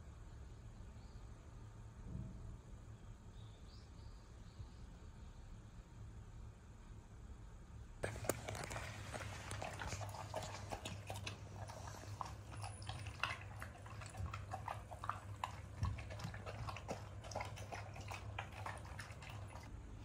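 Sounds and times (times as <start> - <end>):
dog crunching kibble: 8.0 - 19.7.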